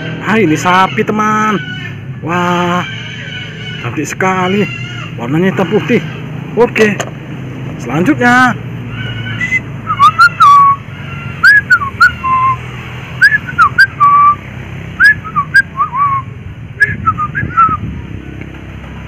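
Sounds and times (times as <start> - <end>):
person whistling a tune: 9.4 - 10.8, 11.4 - 12.6, 13.2 - 14.4, 15.0 - 17.8.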